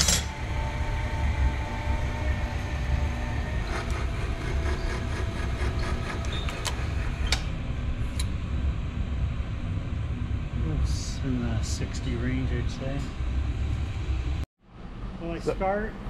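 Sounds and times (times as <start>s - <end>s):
electric motor humming: 0.0s - 7.6s.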